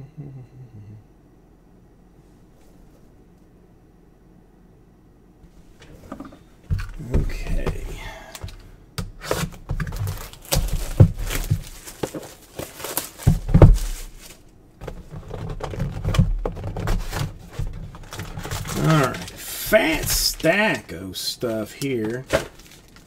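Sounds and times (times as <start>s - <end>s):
wrappers crinkling: 9.2s - 23.0s.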